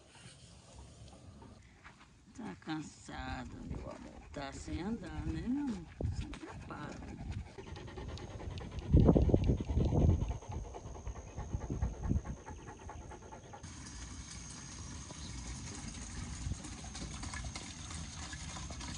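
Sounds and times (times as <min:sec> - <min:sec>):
dog panting: 0:03.0 - 0:13.7.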